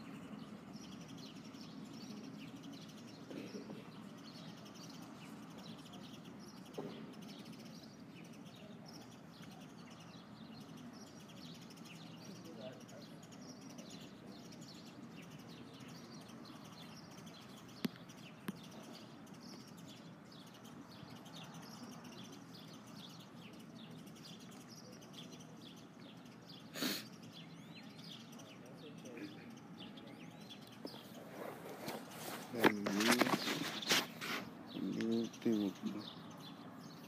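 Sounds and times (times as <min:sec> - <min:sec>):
light scratchy strokes: 0:30.9 - 0:34.6.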